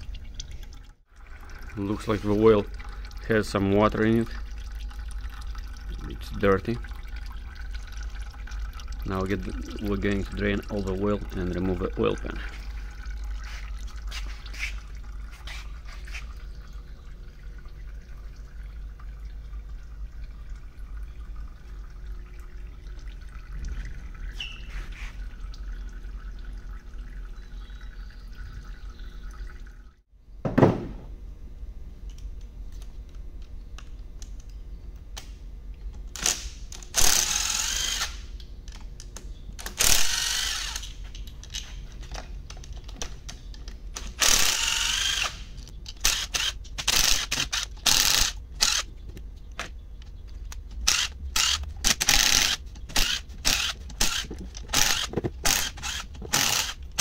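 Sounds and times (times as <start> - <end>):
loud knock: 30.4 - 31.1
cordless drill whirring: 37.0 - 38.2, 39.8 - 40.9, 44.2 - 45.4, 50.9 - 54.2, 54.8 - 56.8.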